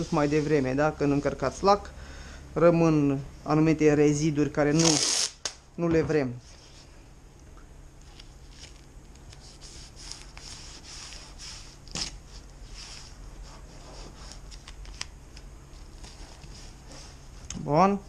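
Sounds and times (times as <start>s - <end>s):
masking tape crinkling: 8.0s - 13.1s, 13.9s - 16.5s.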